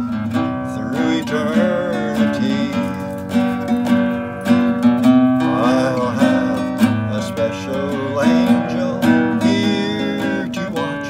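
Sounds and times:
classical guitar chords: 0:00.0 - 0:11.0
man singing softly: 0:00.6 - 0:03.3, 0:05.4 - 0:11.0.

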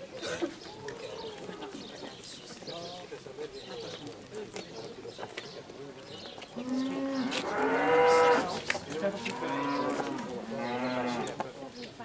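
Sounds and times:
cattle mooing: 0:06.6 - 0:08.6, 0:09.2 - 0:11.3.

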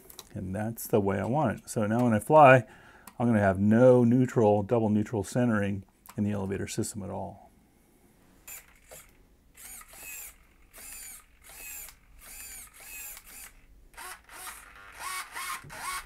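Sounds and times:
servos whining: 0:08.4 - 0:16.0.

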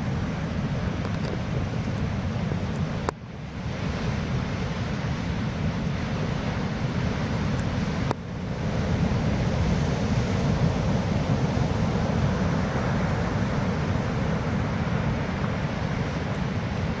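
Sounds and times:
ocean surf breaking: 0:00.0 - 0:17.0.

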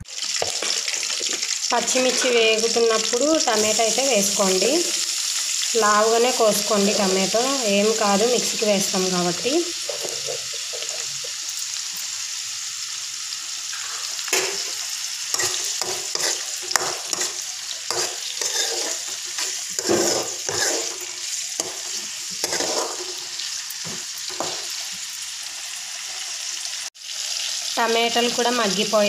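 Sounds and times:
vegetables sizzling in oil: 0:00.0 - 0:29.0
spatula scraping metal pan: 0:00.4 - 0:02.6, 0:13.8 - 0:23.4.

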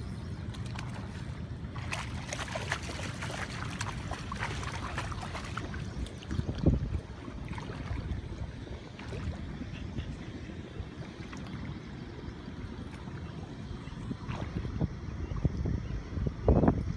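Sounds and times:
fish splashing in water: 0:00.4 - 0:09.6.

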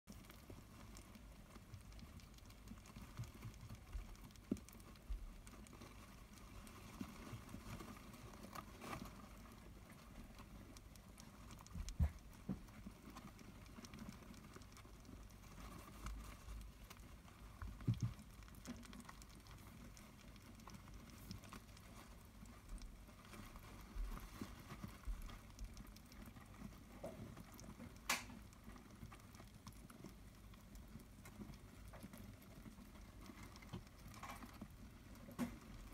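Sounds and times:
hamsters eating from food bowls: 0:00.0 - 0:35.9
hamsters scrabbling in bedding: 0:00.1 - 0:35.9.

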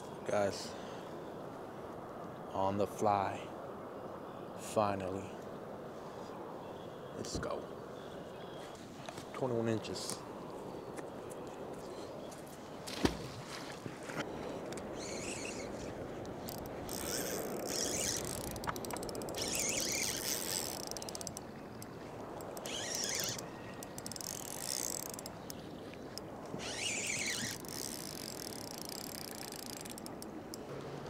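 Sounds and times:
fishing reel clicking: 0:15.0 - 0:15.6, 0:16.4 - 0:25.6, 0:26.6 - 0:30.7.

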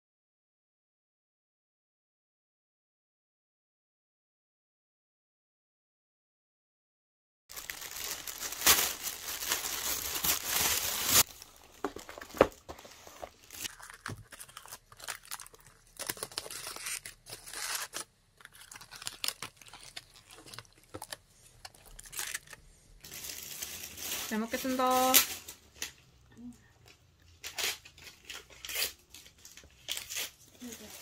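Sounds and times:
aluminium foil crinkling: 0:07.5 - 0:26.1, 0:26.8 - 0:31.0
plastic bag rustling and crinkling: 0:07.5 - 0:26.1, 0:26.8 - 0:31.0.

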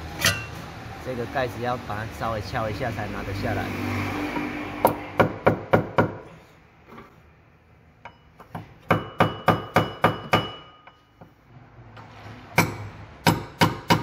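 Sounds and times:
hammer striking metal: 0:08.1 - 0:11.1, 0:12.5 - 0:14.0.

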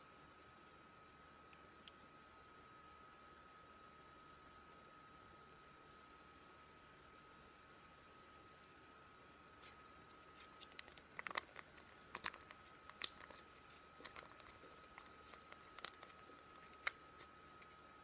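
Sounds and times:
packaging crinkling: 0:09.6 - 0:18.0.

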